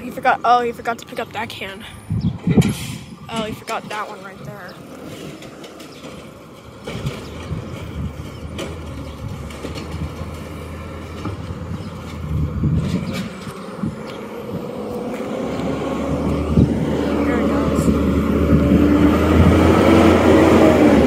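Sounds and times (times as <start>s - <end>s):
garbage truck engine running: 0.0s - 21.0s.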